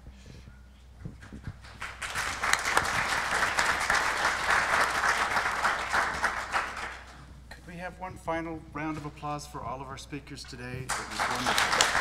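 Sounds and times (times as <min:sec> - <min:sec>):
small audience applauding: 0:01.2 - 0:07.2, 0:10.9 - 0:12.0.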